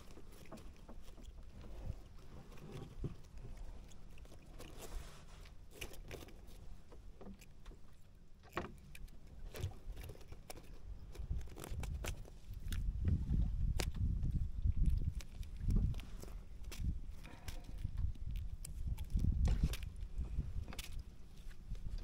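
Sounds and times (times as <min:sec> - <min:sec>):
wind rumble on microphone: 0:09.5 - 0:22.0.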